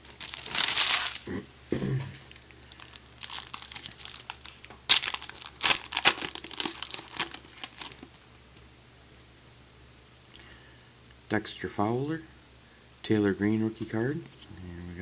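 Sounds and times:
foil wrapper crinkling: 0.0 - 1.3, 2.3 - 8.2.

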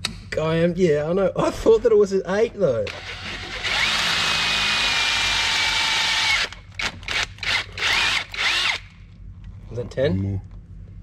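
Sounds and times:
power drill drilling: 2.9 - 8.9.

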